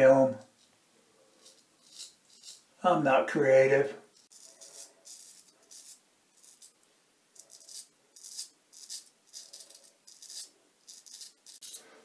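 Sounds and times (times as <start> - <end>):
razor scraping stubble: 1.4 - 2.7.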